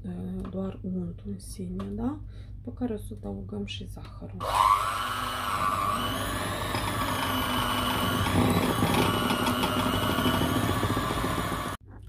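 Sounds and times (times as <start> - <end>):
electric hand mixer running: 4.4 - 11.8.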